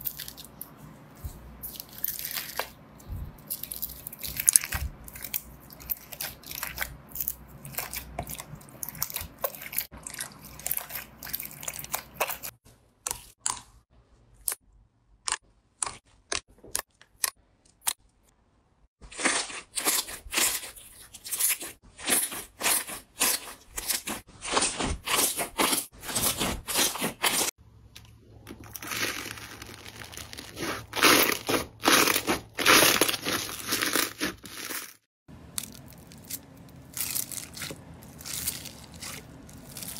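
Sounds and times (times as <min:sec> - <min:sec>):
sticky slime squelches: 0:00.0 - 0:18.0, 0:19.0 - 0:39.9
foam beads crunching: 0:01.6 - 0:02.8, 0:28.5 - 0:39.9.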